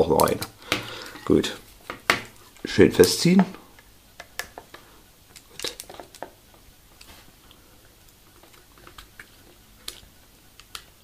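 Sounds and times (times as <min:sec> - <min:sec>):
small plastic parts clicking: 0:03.8 - 0:06.4.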